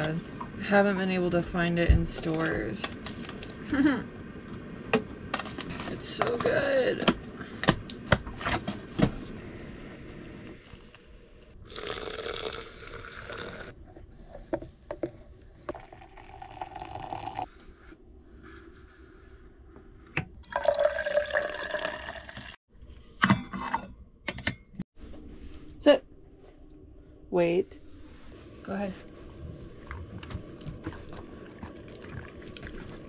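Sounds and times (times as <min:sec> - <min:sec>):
coffee pouring into steel mug: 0:11.6 - 0:13.7, 0:15.7 - 0:17.5, 0:20.4 - 0:22.6
water pouring into glass carafe: 0:11.6 - 0:13.7, 0:15.7 - 0:17.5, 0:20.4 - 0:22.6, 0:31.4 - 0:33.0
spoon stirring in carafe: 0:15.7 - 0:17.5.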